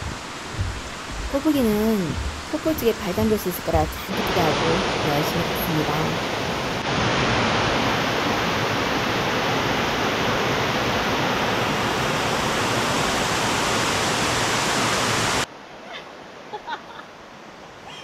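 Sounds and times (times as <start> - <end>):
waterfall rushing: 0.0 - 15.5.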